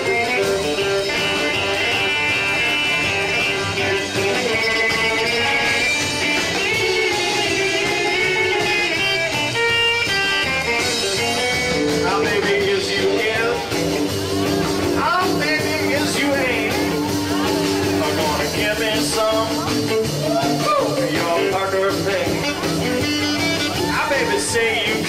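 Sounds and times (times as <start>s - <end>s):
saxophone: 0.0s - 13.2s, 19.8s - 25.0s
electric guitar: 0.0s - 25.0s
live rock and roll band: 0.0s - 25.0s.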